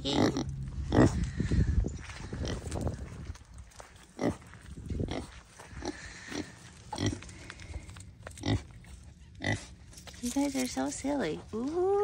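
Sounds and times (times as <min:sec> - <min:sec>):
pig grunting: 0:00.0 - 0:01.6, 0:04.2 - 0:09.8.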